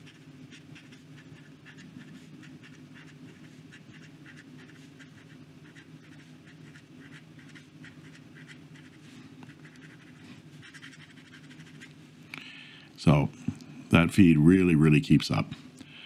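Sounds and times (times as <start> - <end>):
fountain pen scratching paper: 0.0 - 11.9
low steady hum: 0.0 - 16.0.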